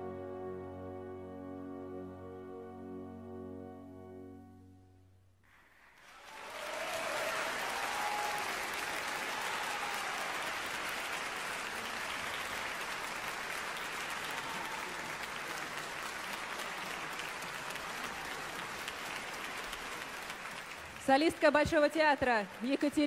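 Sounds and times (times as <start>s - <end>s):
audience applauding: 5.8s - 23.0s.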